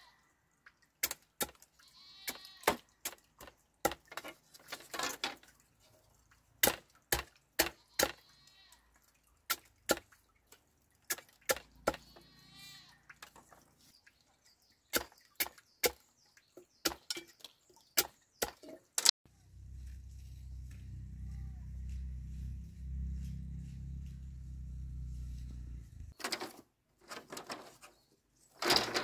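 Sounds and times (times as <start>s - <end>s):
machete chopping bamboo: 1.0s - 1.6s, 6.6s - 8.2s, 11.1s - 12.0s.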